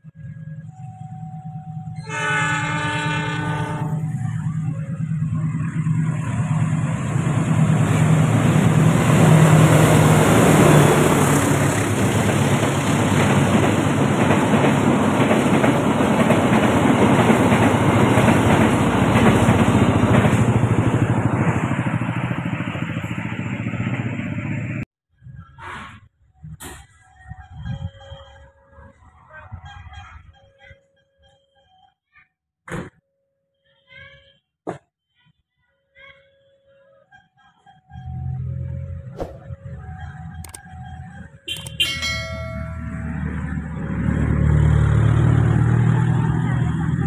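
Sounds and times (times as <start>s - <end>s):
diesel train rumbling past: 0.0s - 24.9s, 37.8s - 47.0s
coaches rolling on rails: 0.2s - 24.8s, 37.3s - 47.0s.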